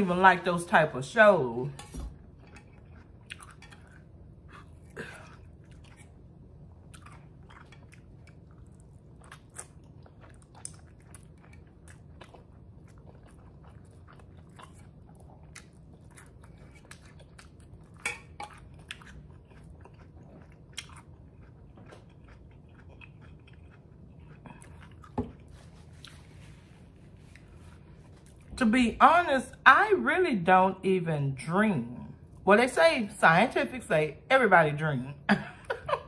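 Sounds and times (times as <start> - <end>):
person chewing noodles: 2.2 - 28.5.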